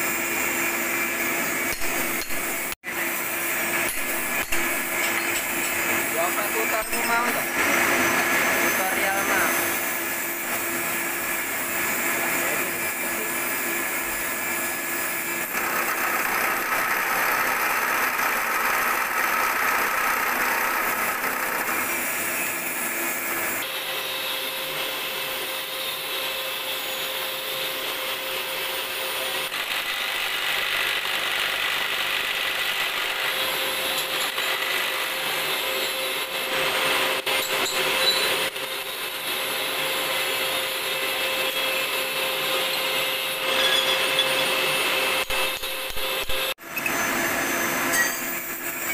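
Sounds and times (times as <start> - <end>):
milling machine cutting metal: 0.0 - 48.9.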